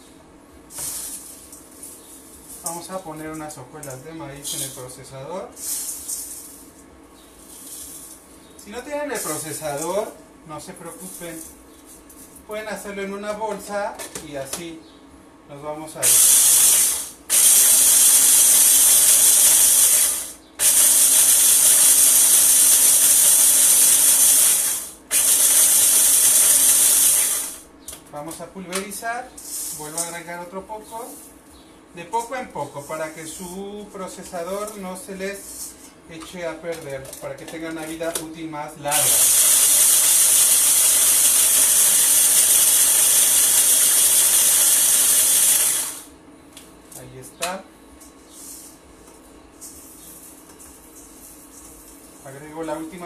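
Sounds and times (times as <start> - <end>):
food processor chopping flakes: 16.0 - 27.6, 38.9 - 46.1.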